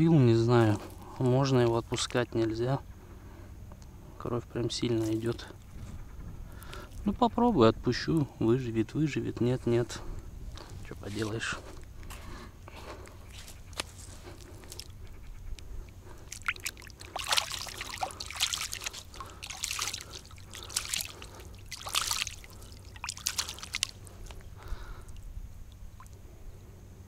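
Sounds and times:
water splashing and trickling: 0:13.8 - 0:15.1, 0:15.9 - 0:26.3.

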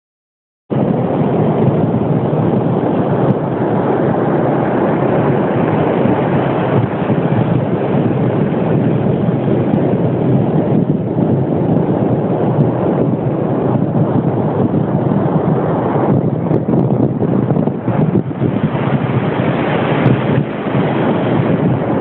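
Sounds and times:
beach surf: 0:00.7 - 0:22.0
wind on microphone: 0:00.7 - 0:22.0.

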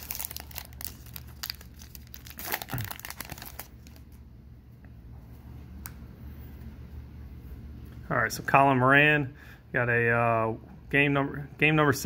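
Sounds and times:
plastic wrapper tearing and crinkling: 0:00.0 - 0:04.1.

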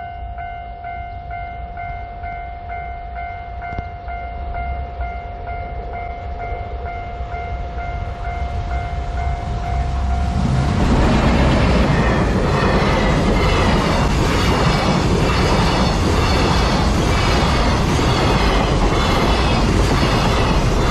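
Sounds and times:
level crossing warning bell: 0:00.0 - 0:10.9
freight train rumble: 0:00.0 - 0:20.9.

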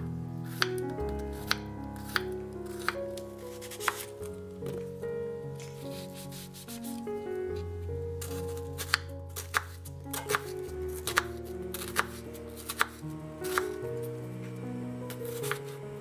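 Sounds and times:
soft background music: 0:00.0 - 0:16.0
knife slicing onion: 0:00.5 - 0:03.0, 0:03.6 - 0:04.2, 0:08.2 - 0:13.8, 0:15.2 - 0:15.7.

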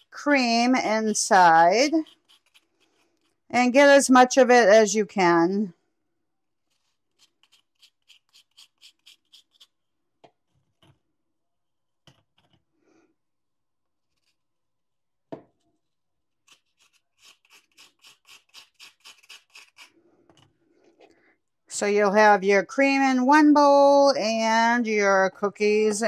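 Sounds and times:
knife scraping cookie filling: 0:01.0 - 0:03.5, 0:06.6 - 0:09.8, 0:16.4 - 0:20.0.

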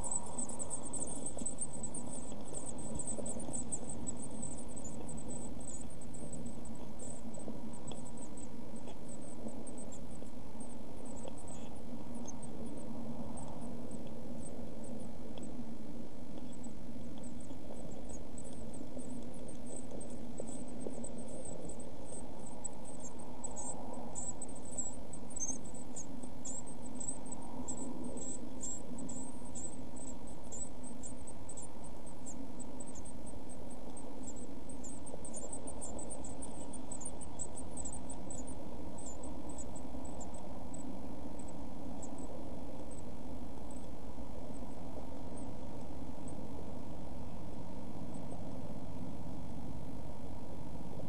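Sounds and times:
nestlings peeping: 0:00.0 - 0:50.3
steady low hum: 0:00.0 - 0:51.0.

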